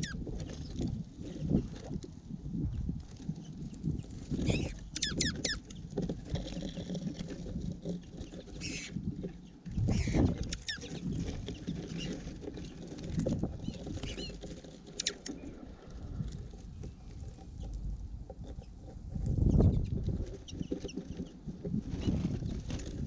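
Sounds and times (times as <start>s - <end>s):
birds rustling in seed: 0.0s - 23.0s
finches chirping: 3.4s - 5.9s, 8.2s - 12.8s, 13.6s - 14.4s.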